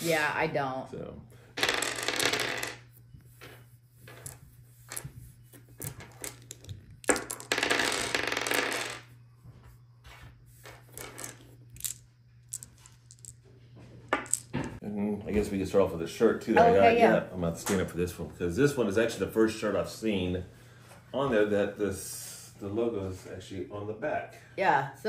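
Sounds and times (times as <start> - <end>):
plastic dice clattering on wood: 1.6 - 2.8, 5.8 - 9.0, 10.8 - 13.4, 14.1 - 14.7.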